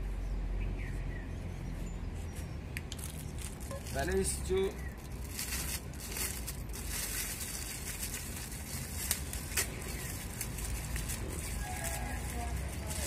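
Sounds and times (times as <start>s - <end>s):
sharp plastic crackles: 2.7s - 13.0s
plastic packaging crinkling: 2.8s - 13.0s.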